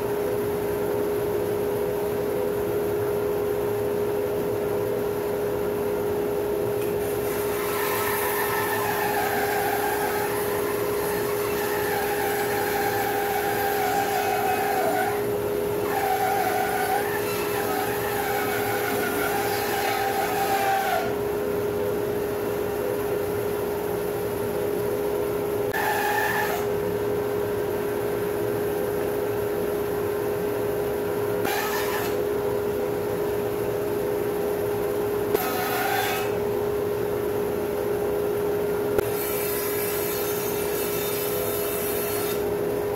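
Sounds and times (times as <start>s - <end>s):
bandsaw humming: 6.9s - 21.3s, 25.7s - 26.8s, 31.4s - 32.2s, 35.3s - 36.5s, 39.0s - 42.5s
bandsaw blade cutting log: 7.1s - 21.2s, 25.7s - 26.7s, 31.4s - 32.2s, 35.4s - 36.4s, 39.0s - 42.5s.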